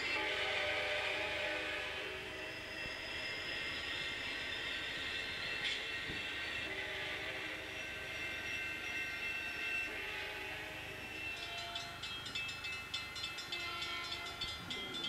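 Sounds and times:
train horn tone: 0.2s - 2.4s, 6.6s - 7.7s, 9.9s - 11.8s.

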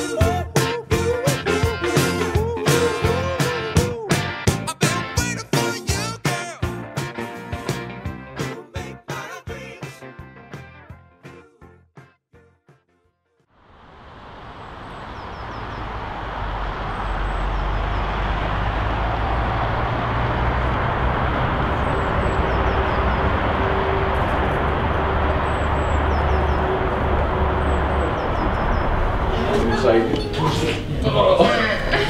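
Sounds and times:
road traffic rumble: 13.6s - 31.0s
small birds chirping: 14.4s - 18.7s, 21.6s - 23.6s, 25.3s - 29.3s.

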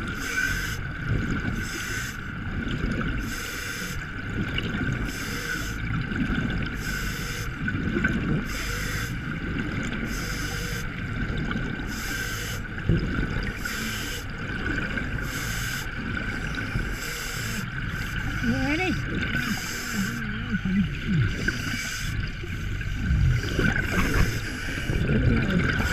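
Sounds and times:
exhaled bubbles gurgling: 0.0s - 25.9s
steady high hum: 0.0s - 25.9s
scuba regulator hiss: 1.6s - 2.2s, 5.1s - 5.8s, 6.8s - 7.5s, 8.5s - 9.1s, 11.9s - 12.7s, 13.6s - 14.3s, 15.2s - 15.9s, 16.9s - 18.4s, 19.4s - 20.2s.

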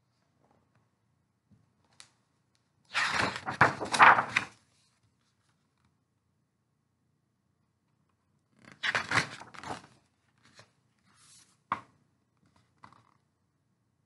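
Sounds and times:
book pages rustling: 3.0s - 5.9s, 8.6s - 13.2s.

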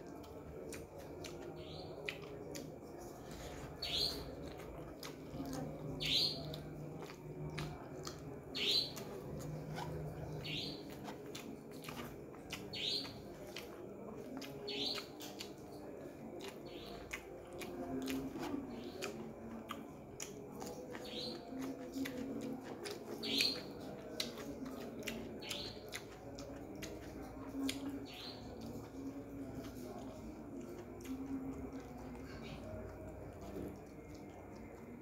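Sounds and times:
wet chewing and smacking: 0.0s - 35.0s
bird chirping: 3.4s - 4.6s, 5.4s - 7.8s, 10.1s - 13.4s, 25.4s - 27.0s.

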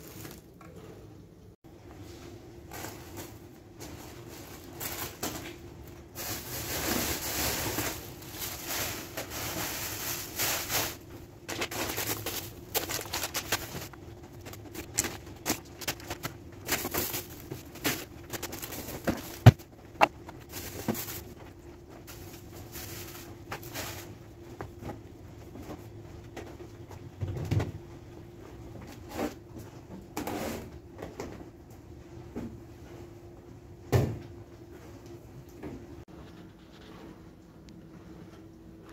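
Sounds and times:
plastic bags rustling: 0.0s - 0.8s, 2.4s - 24.7s.

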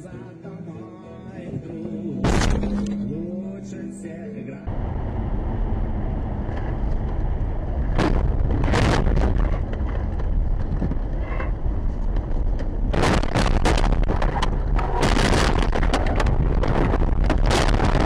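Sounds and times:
road and wind noise: 1.5s - 18.0s
car crash bangs and thuds: 2.2s - 3.0s, 12.9s - 18.0s.

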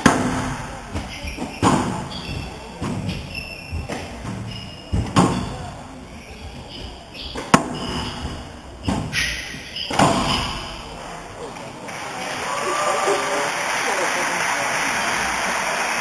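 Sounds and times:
shoes squeaking on wooden floor: 0.8s - 11.0s
squash ball knocks: 7.4s - 8.0s.

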